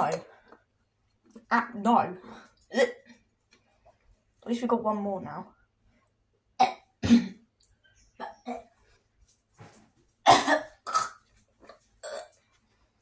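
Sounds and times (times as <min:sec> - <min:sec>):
boy coughing: 0:06.6 - 0:07.4, 0:10.2 - 0:11.2.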